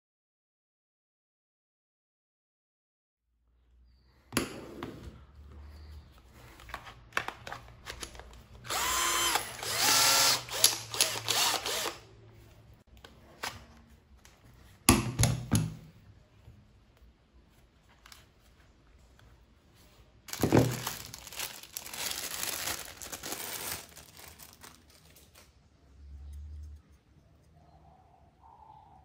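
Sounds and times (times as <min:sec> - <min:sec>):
cordless drill motor whining: 0:08.6 - 0:12.0.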